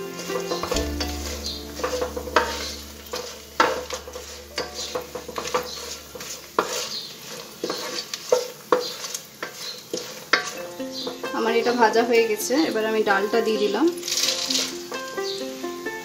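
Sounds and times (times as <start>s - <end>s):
spatula tapping a pan: 0.0s - 11.7s
nuts and spices sizzling in oil: 0.0s - 16.0s
wooden spatula scraping a pan: 0.0s - 16.0s.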